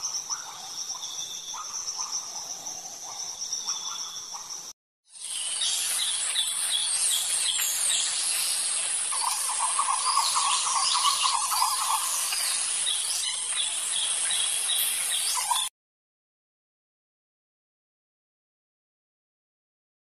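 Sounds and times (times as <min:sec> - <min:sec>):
birds chirping: 0:00.0 - 0:15.7
insect hiss: 0:00.0 - 0:15.7.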